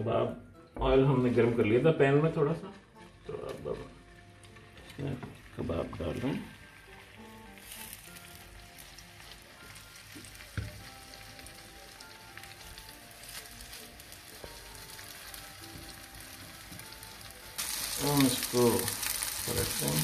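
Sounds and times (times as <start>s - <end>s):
soft background music: 0.0s - 20.0s
meat sizzling in oil: 5.4s - 20.0s.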